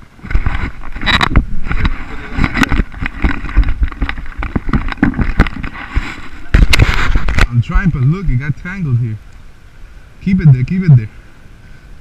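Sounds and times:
microphone handling knocks and scrapes: 0.0s - 7.6s.

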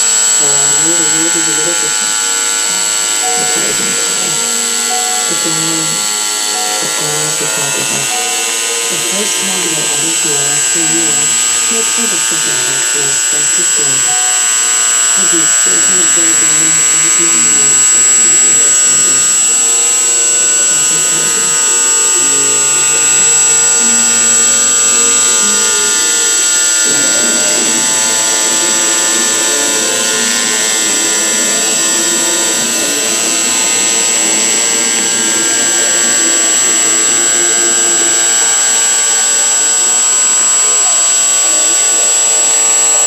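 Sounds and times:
high steady motor whine: 0.0s - 43.0s
stepper motors humming: 0.0s - 43.0s.

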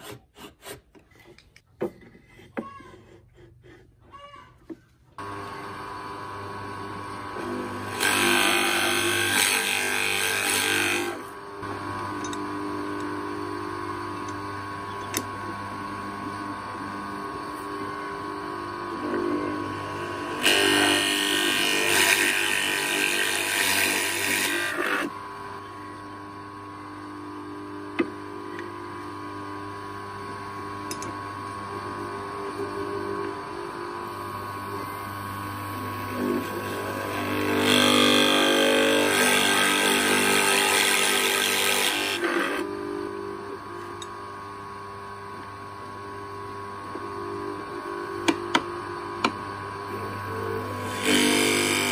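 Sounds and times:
drill press boring into wood: 5.2s - 13.4s, 14.0s - 25.2s, 34.7s - 44.2s, 47.2s - 51.9s.

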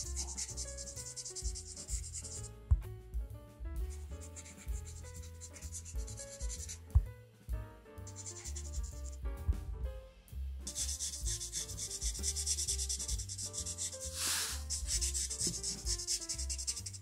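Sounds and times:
marker scratching on paper: 0.0s - 2.6s, 3.9s - 6.9s, 8.1s - 9.2s, 10.6s - 17.0s
faint background music: 0.0s - 17.0s.

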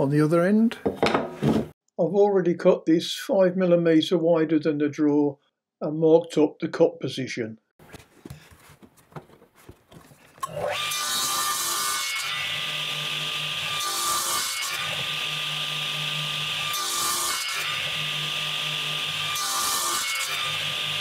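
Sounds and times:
saw blade cutting wood: 10.4s - 21.0s.

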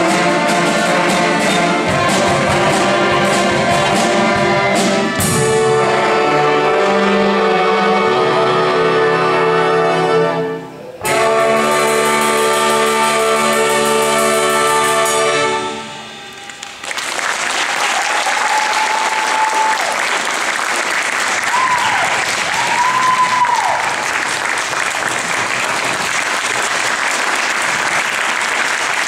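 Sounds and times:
band holding a chord: 0.0s - 17.0s
crowd whistling: 16.2s - 20.2s, 21.5s - 24.1s
audience applause: 16.4s - 29.0s.

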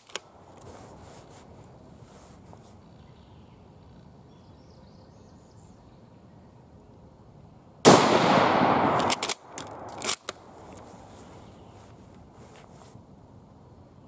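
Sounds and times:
rifle shot: 7.8s - 10.3s
rifle bolt metallic clacks: 8.6s - 10.8s.

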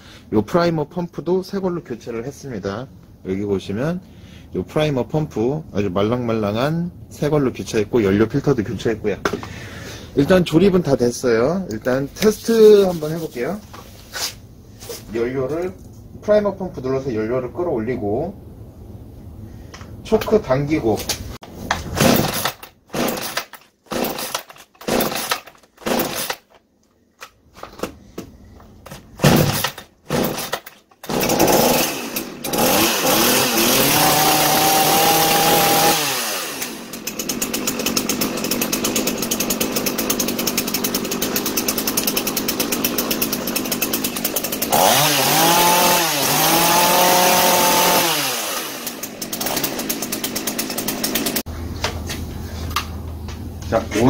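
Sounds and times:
chainsaw pull-starter pulls: 21.8s - 26.6s, 28.9s - 51.4s
chainsaw engine running and revving: 31.1s - 51.4s.

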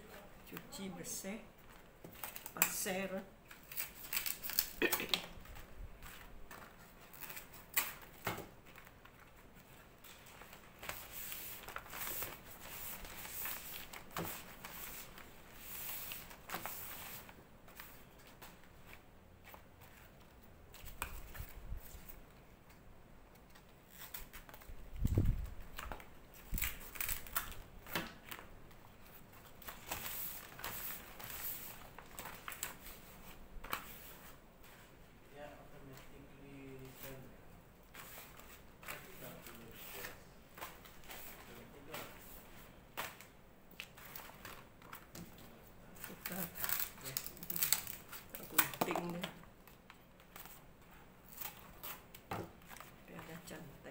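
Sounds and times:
leaves rustling and crinkling: 46.0s - 49.1s.

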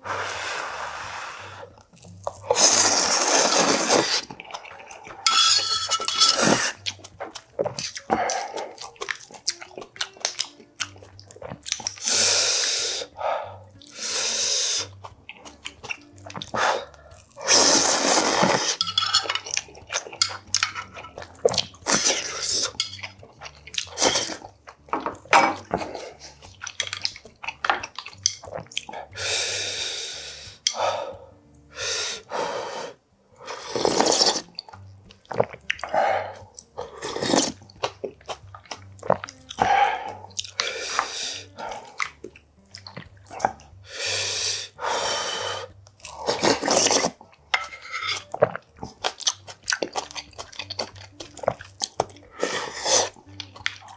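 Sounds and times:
noodle slurping: 0.1s - 5.3s, 6.0s - 9.8s, 11.8s - 24.5s, 33.4s - 34.7s, 35.3s - 53.9s
chewing: 1.8s - 29.2s, 33.4s - 43.9s, 45.7s - 53.9s
utensils clicking on ceramic bowls: 5.2s - 6.8s, 18.5s - 21.3s, 21.9s - 23.2s.

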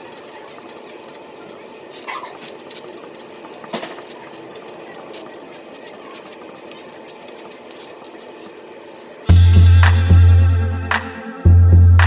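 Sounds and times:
marker scraping on paper: 0.0s - 8.5s.

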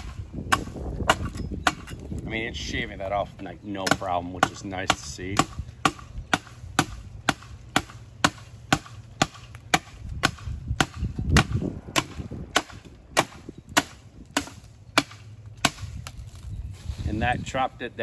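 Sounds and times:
shovel blade chopping branch: 0.0s - 2.1s, 3.8s - 16.5s
low rumble: 9.0s - 17.4s.

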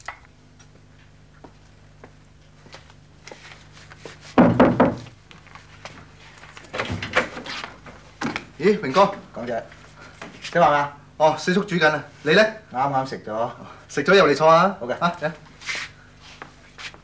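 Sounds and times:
faint footsteps: 0.7s - 6.7s, 15.4s - 17.0s
knocking on wooden door: 4.4s - 5.2s.

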